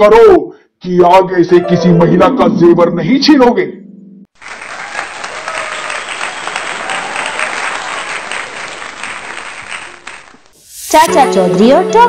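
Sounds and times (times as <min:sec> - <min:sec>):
crowd clapping: 0:04.3 - 0:10.6.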